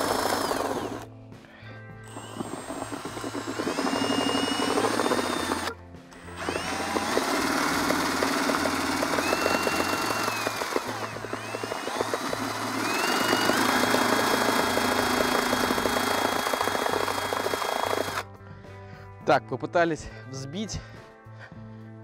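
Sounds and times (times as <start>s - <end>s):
cordless drill motor whine: 0.0s - 1.1s, 1.9s - 18.3s
paddle mixer churning liquid: 2.1s - 18.2s.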